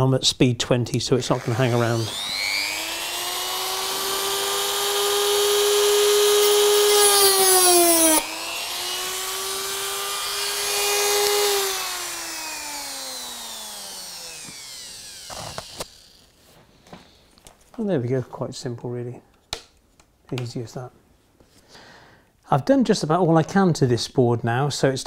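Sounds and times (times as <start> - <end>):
rotary tool whining: 1.3 - 16.4
cutting disc rasping through wire: 1.4 - 16.3.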